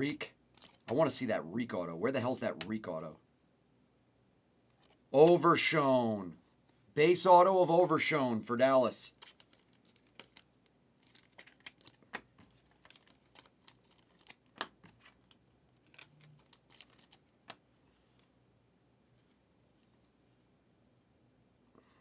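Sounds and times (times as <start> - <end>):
trading cards flipped by hand: 0.1 - 1.1, 9.1 - 18.3.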